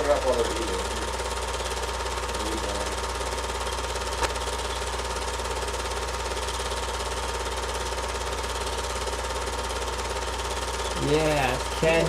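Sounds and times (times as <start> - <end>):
film projector clattering: 0.0 - 12.0.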